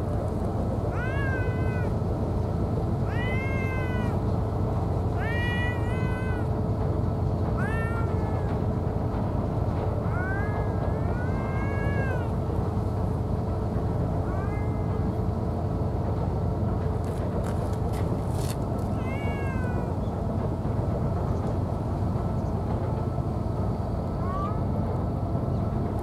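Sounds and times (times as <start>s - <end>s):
cat meowing: 0.9s - 2.0s, 3.0s - 4.2s, 5.2s - 6.6s, 7.6s - 8.7s, 10.0s - 12.4s, 14.2s - 15.0s, 18.9s - 20.0s, 24.2s - 24.7s.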